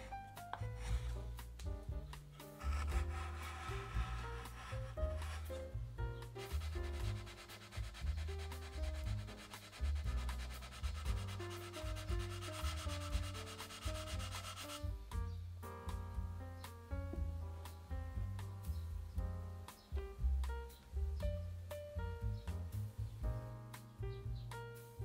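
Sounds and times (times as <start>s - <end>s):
soft background music: 0.0s - 25.0s
sanding block rasping on wood: 2.6s - 5.8s, 6.4s - 14.8s.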